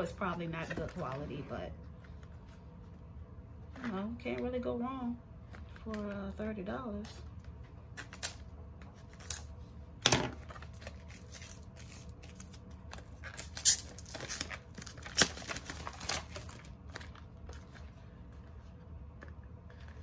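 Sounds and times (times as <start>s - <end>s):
plastic packaging tearing and crinkling: 7.9s - 9.5s, 10.4s - 17.7s.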